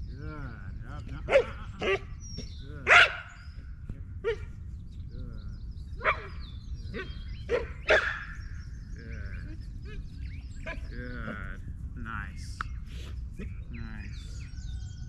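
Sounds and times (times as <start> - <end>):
dog barking: 1.2 - 2.1, 2.8 - 3.4, 4.2 - 4.5, 6.0 - 8.4.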